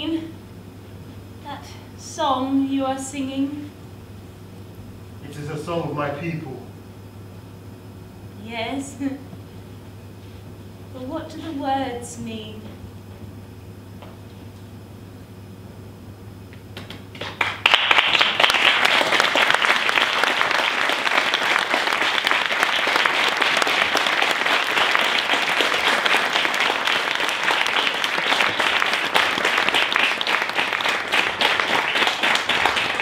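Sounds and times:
audience applauding: 0:16.8 - 0:33.0.

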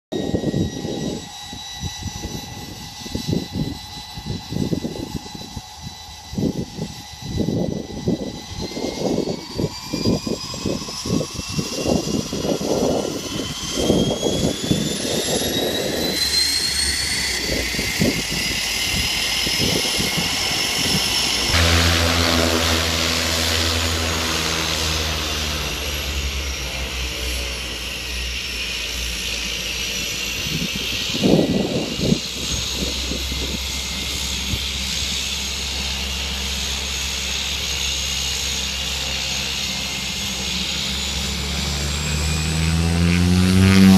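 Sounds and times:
turbine engine whine: 0:00.1 - 0:43.9
propeller drone: 0:00.2 - 0:43.9
low rumbling: 0:17.7 - 0:28.4.

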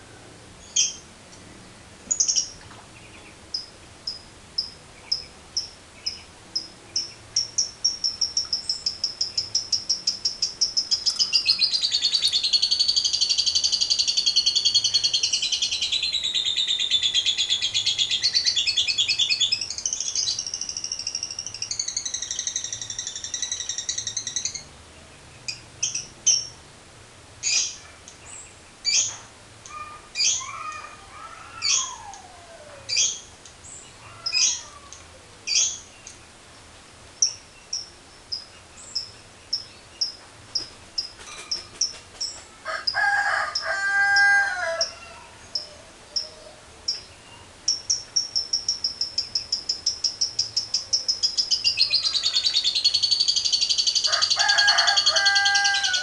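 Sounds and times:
lovebird chirping and trilling: 0:00.6 - 0:01.0, 0:02.1 - 0:24.7, 0:27.4 - 0:31.0, 0:31.6 - 0:32.2, 0:32.9 - 0:34.8, 0:35.5 - 0:36.2, 0:37.2 - 0:56.0
lovebird low drawn-out call: 0:44.1 - 0:54.4.

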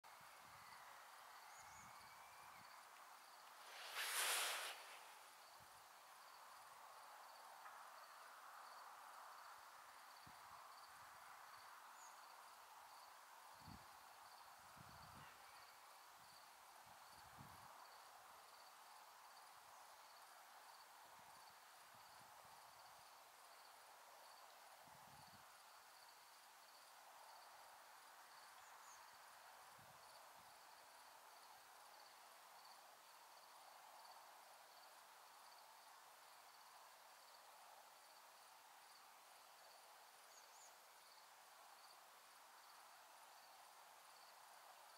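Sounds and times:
crickets chirping: 0:00.1 - 0:44.9
quiet hiss: 0:00.1 - 0:44.9.

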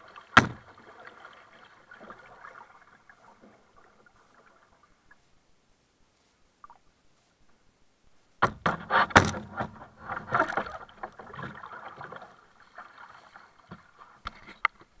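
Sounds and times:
water splashing: 0:00.0 - 0:05.3, 0:08.4 - 0:14.5.

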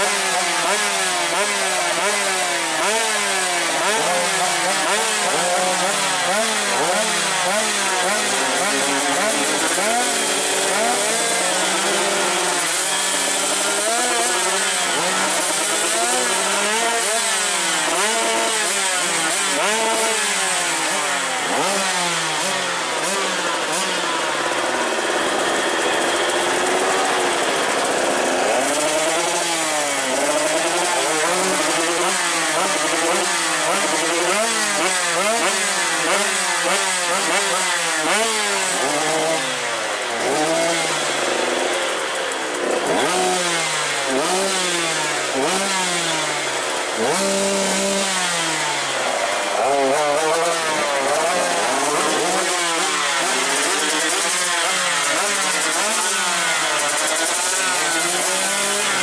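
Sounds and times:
motorbikes revving: 0:00.0 - 0:59.0.

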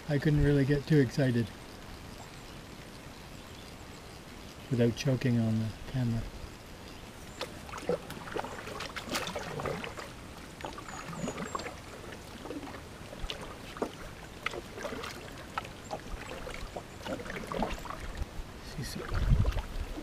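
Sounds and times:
water splashing and dripping: 0:06.0 - 0:20.0
paddle knocking canoe: 0:07.4 - 0:18.3, 0:18.9 - 0:20.0.

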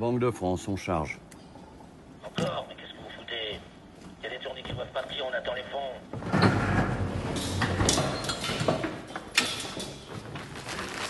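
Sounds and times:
metal door clanking and rattling: 0:06.2 - 0:10.2.

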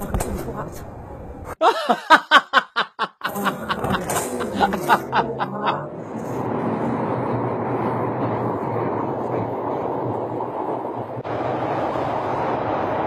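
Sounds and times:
giggling laughter effect: 0:01.6 - 0:06.0
underground train rumble: 0:03.3 - 0:13.0.

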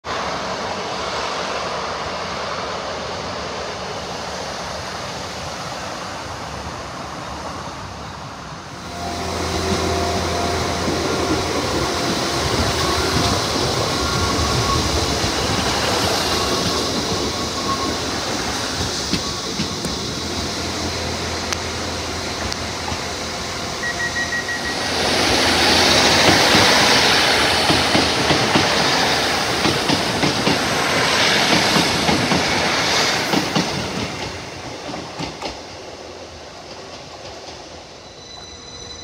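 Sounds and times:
steady train whine: 0:00.0 - 0:39.0
train rumbling over viaduct: 0:00.0 - 0:39.0
diesel train engine drone: 0:00.1 - 0:39.0.

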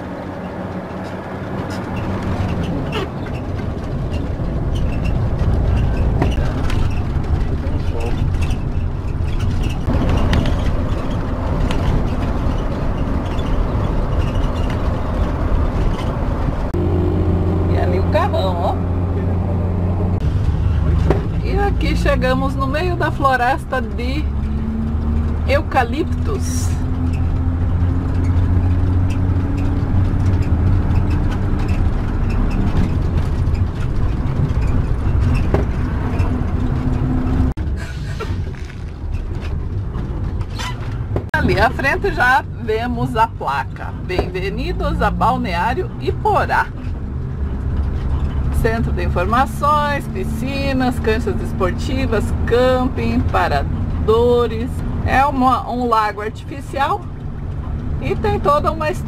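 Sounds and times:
engine drone and road noise: 0:00.0 - 0:59.0.

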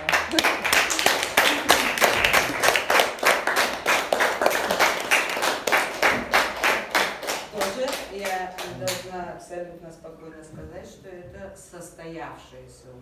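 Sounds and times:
audience clapping: 0:00.0 - 0:09.1.

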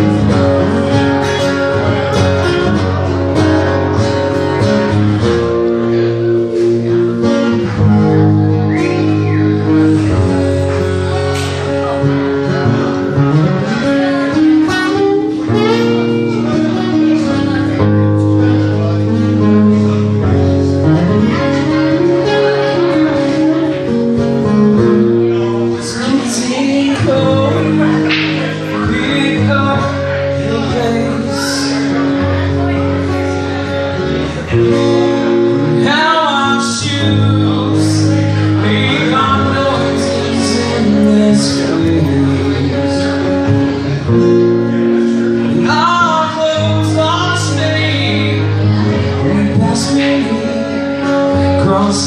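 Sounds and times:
acoustic guitars strumming chords: 0:00.0 - 0:52.0
picked sliding guitar notes: 0:00.0 - 0:52.0
man singing through pa: 0:25.8 - 0:32.0, 0:35.8 - 0:43.2, 0:45.5 - 0:52.0.

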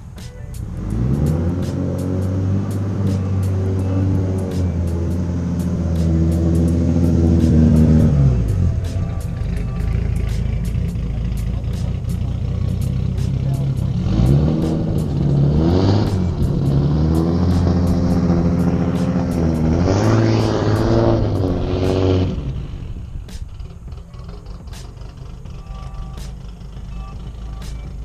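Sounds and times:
car engine revving rough: 0:00.0 - 0:28.0.

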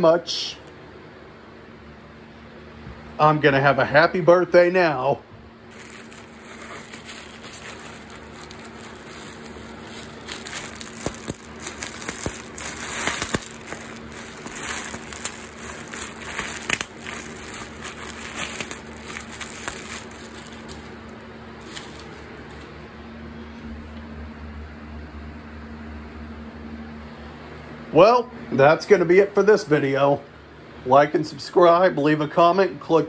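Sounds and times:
bubble wrap crinkling and popping: 0:05.7 - 0:22.7.

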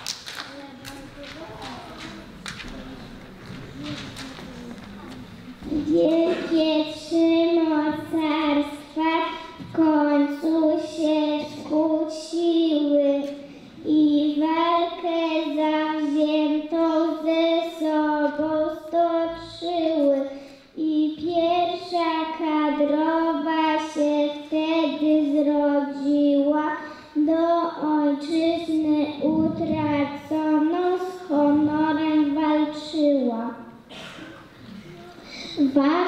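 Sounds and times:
young children singing: 0:05.6 - 0:12.4.

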